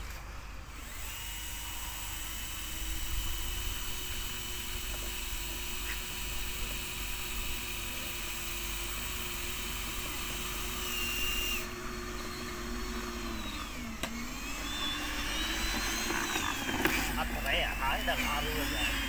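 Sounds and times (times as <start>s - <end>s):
small electric motor whining: 0.0s - 19.0s.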